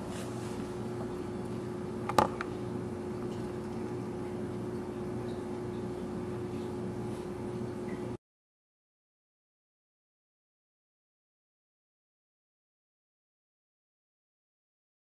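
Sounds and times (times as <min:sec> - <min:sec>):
steady background hum: 0:00.0 - 0:08.2.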